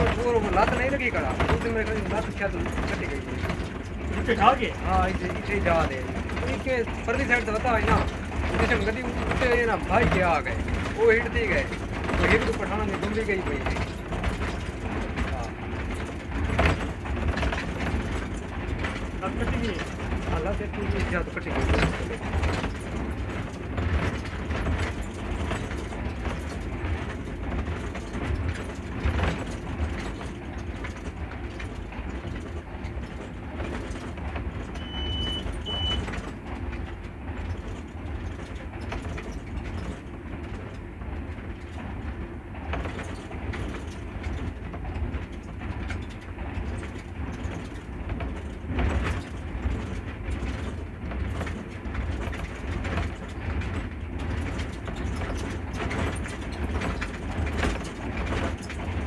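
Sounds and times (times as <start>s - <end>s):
locomotive diesel engine rumble: 0.0s - 59.0s
running gear knocks on track: 0.0s - 59.0s
short high beeps: 34.8s - 36.0s.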